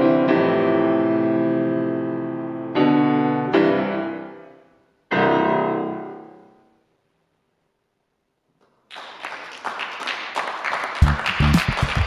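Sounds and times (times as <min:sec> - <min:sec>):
piano chord ringing: 0:05.1 - 0:06.8
audience applause: 0:08.9 - 0:12.0.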